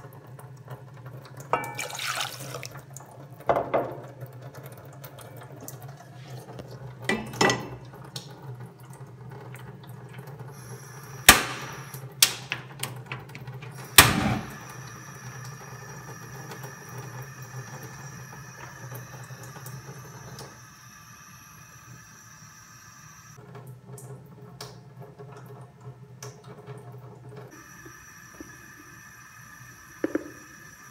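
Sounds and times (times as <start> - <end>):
metal pot clanking on hob: 1.5 - 2.3, 7.1 - 7.8.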